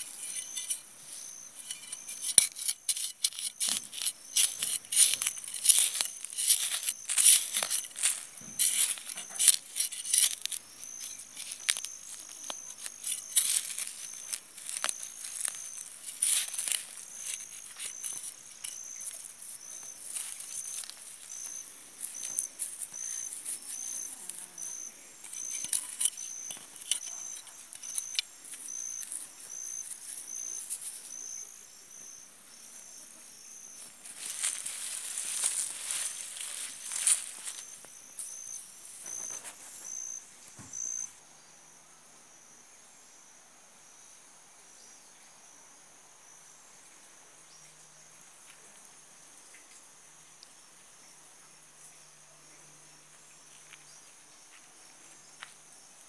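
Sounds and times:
trowel scraping soil: 0.0 - 31.4, 33.7 - 40.2
insect trilling: 0.0 - 41.2.

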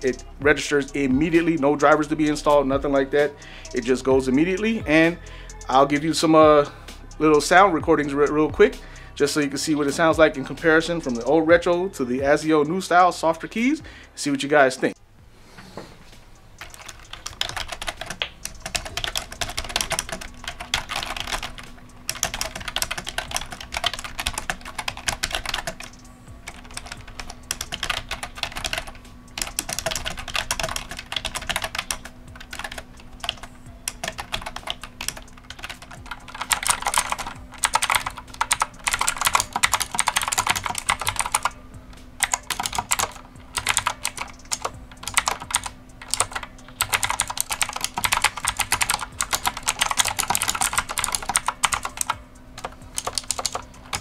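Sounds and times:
clicky mechanical keyboard typing: 16.6 - 41.5, 42.2 - 54.0
typing on soft computer keyboard: 16.6 - 41.6, 42.2 - 54.0.

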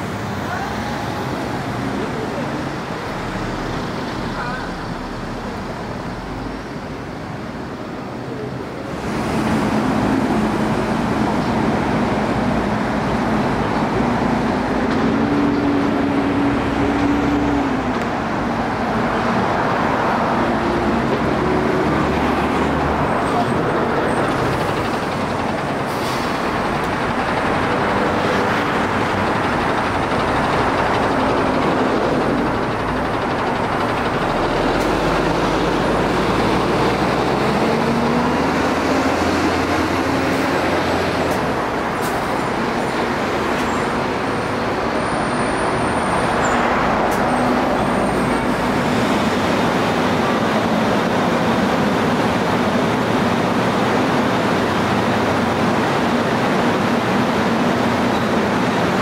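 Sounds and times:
bus diesel engine accelerating: 0.0 - 59.0
street traffic noise: 0.0 - 59.0.

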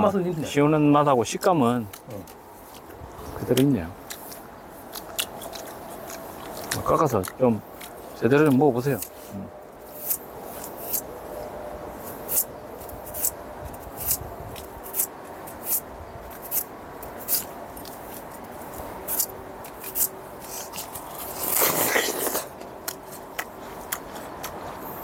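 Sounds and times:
knife cutting pear: 12.1 - 18.3
crisp crunch: 17.2 - 25.0.

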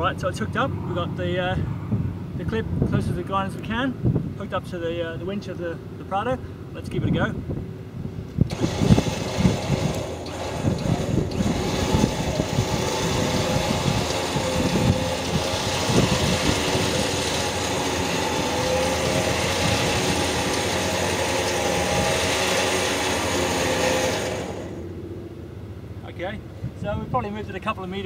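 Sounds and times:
wind rumbling on microphone: 0.7 - 5.2, 6.9 - 20.6, 26.4 - 27.8
winch whining under load: 8.3 - 26.6.

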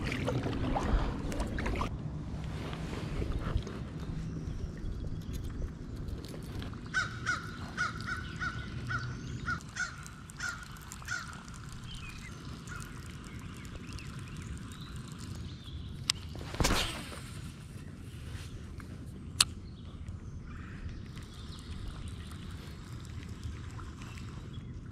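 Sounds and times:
crow cawing: 6.9 - 11.4.

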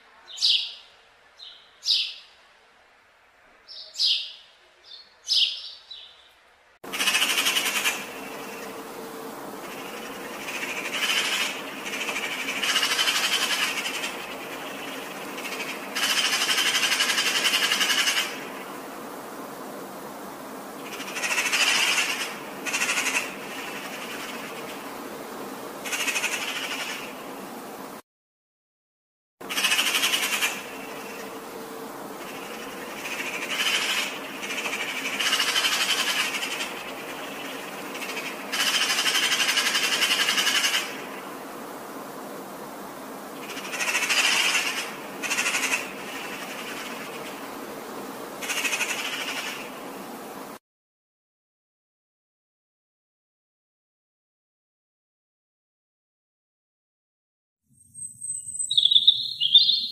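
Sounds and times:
background hiss: 0.0 - 28.0, 29.4 - 50.6.

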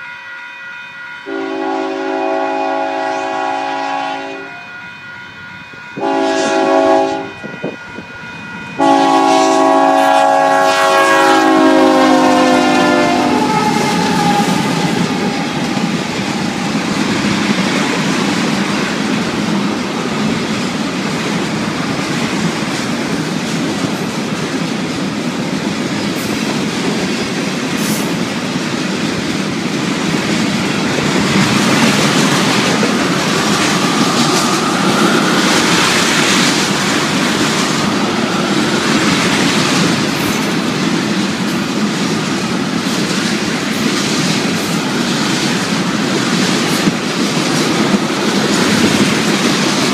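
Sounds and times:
locomotive horn blast: 1.2 - 4.7, 6.0 - 7.8, 8.8 - 15.7
train wheels rumbling and clattering: 8.8 - 49.9.

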